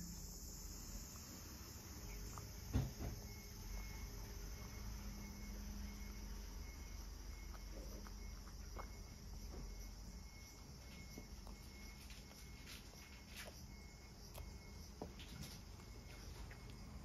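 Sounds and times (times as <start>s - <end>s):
low steady hum: 0.0s - 17.0s
cat chewing and licking: 0.7s - 17.0s.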